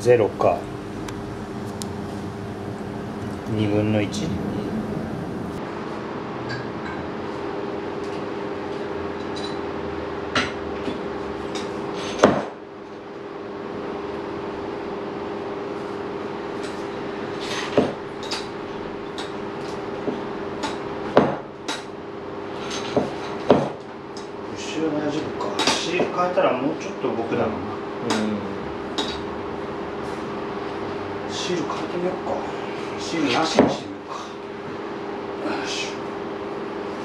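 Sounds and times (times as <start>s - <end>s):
steady hum: 0.0s - 5.7s.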